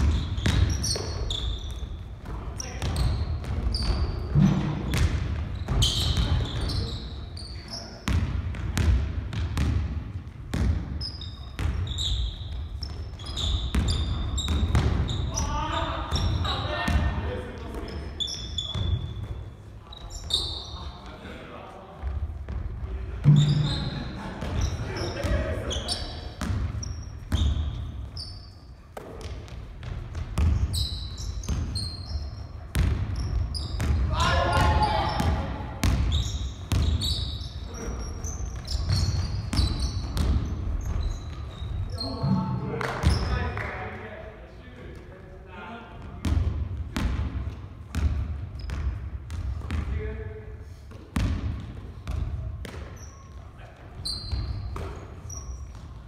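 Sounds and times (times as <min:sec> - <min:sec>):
basketball bouncing on wooden floor: 0:00.0 - 0:06.7, 0:08.0 - 0:15.4, 0:29.0 - 0:31.8, 0:32.7 - 0:37.5, 0:38.4 - 0:42.2, 0:46.2 - 0:49.9, 0:51.1 - 0:53.0, 0:54.6 - 0:55.1
sneaker squeaks: 0:00.0 - 0:09.7, 0:10.5 - 0:21.2, 0:22.0 - 0:43.6, 0:47.0 - 0:49.9, 0:50.8 - 0:56.0.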